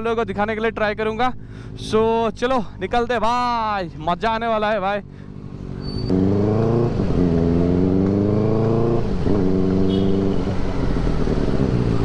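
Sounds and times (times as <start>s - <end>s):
motorcycle engine accelerating: 5.0s - 12.0s.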